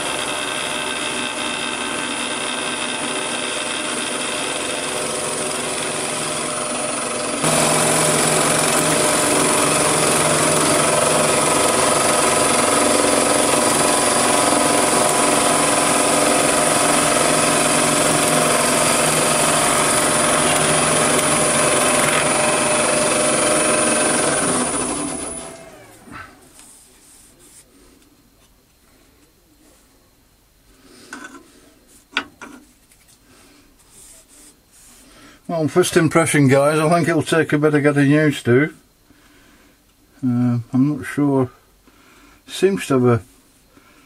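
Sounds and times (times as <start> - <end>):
lathe tool rasping wood: 0.0 - 26.2
lathe motor whine: 0.0 - 26.4.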